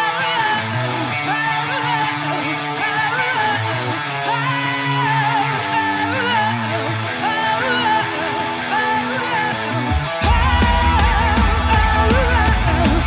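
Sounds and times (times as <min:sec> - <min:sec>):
bass guitar: 0:00.0 - 0:13.0
electric guitar: 0:00.0 - 0:13.0
woman singing: 0:00.0 - 0:13.0
drums: 0:07.1 - 0:13.0.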